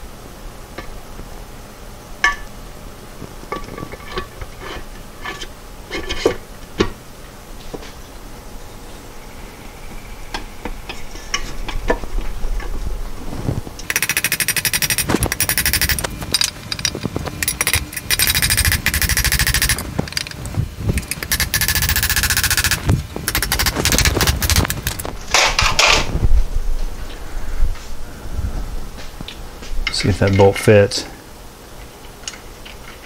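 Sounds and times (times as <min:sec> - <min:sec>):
knocks and clinks of tools: 0:13.8 - 0:26.0
power impact tool rattling: 0:13.8 - 0:26.0.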